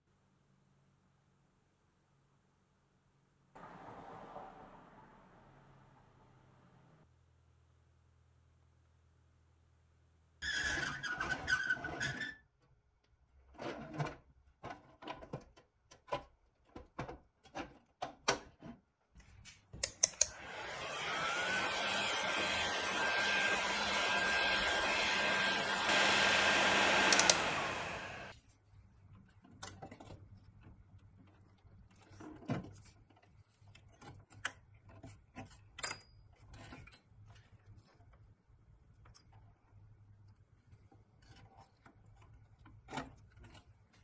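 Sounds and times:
heat gun whine: 20.1 - 28.3
switch click: 27.0 - 27.5.

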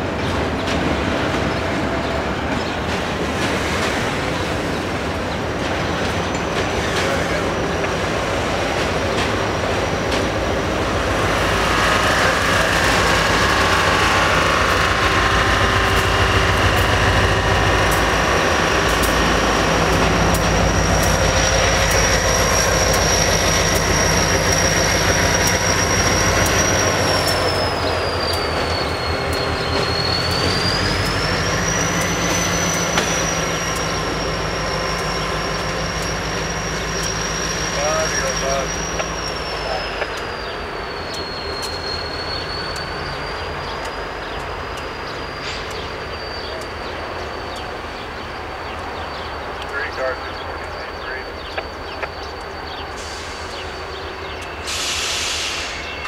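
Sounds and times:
diesel locomotives running: 0.0 - 56.0
train wheels squealing: 6.2 - 56.0
thin high squeal: 19.4 - 47.4.

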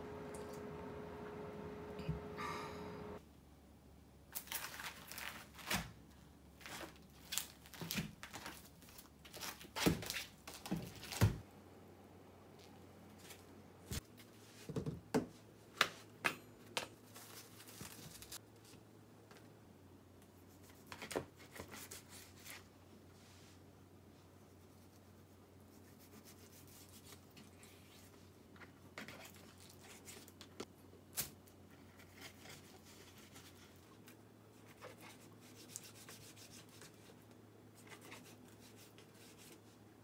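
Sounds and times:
steady tone: 0.0 - 3.2
plastic wrap crinkling and tearing: 4.3 - 5.9, 6.6 - 11.3.

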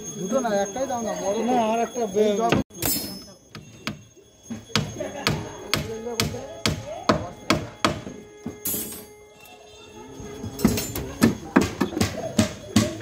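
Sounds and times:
hammer knocking on wood: 3.6 - 8.6, 10.6 - 13.0.

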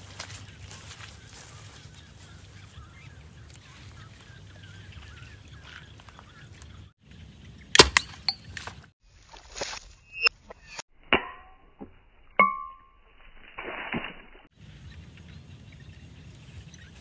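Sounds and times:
faint bird calls: 0.3 - 6.9.

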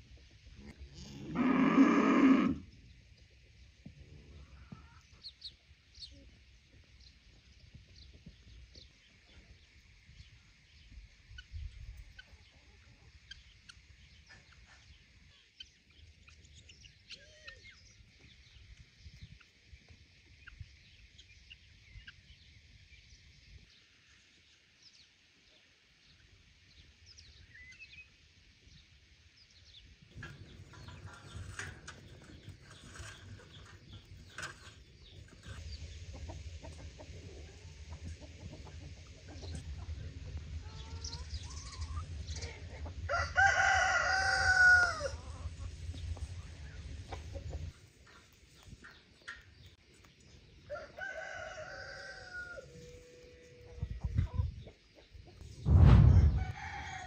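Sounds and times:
chickens clucking: 30.2 - 55.4.

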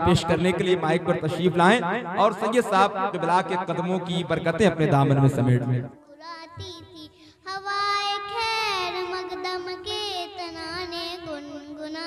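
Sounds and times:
boy singing solo: 6.0 - 12.0.

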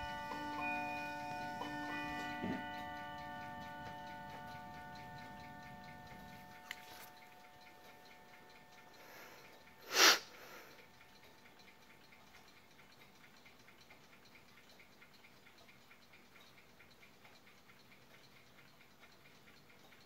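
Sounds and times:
clock ticking: 0.0 - 20.0
sniff close to microphone: 9.8 - 10.7.

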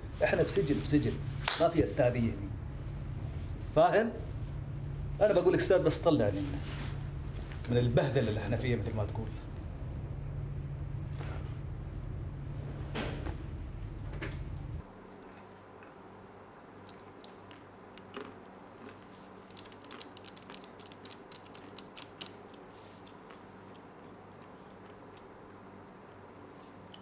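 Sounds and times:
low steady hum: 0.0 - 27.0
rapid sharp mechanical clicks: 19.5 - 22.4.

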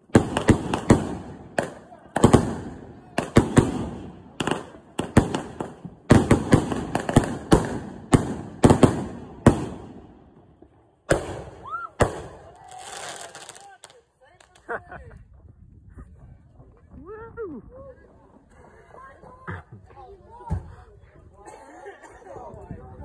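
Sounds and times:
firework bangs with crackling: 0.0 - 10.4, 11.1 - 13.6.

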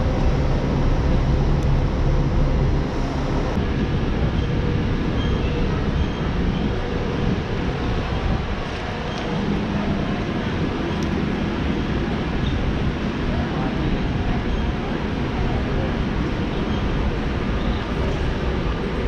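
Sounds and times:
hum: 0.0 - 8.4.

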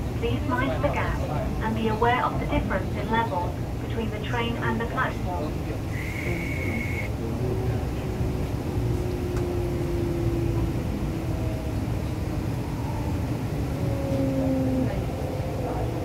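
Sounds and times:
train running rumble: 0.0 - 16.0
train motor whines: 5.9 - 7.1.

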